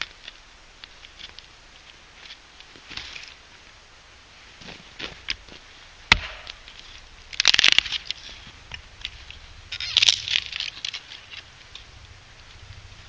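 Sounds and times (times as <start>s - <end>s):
wood splitting with axe: 6.1s - 6.8s, 7.4s - 8.8s.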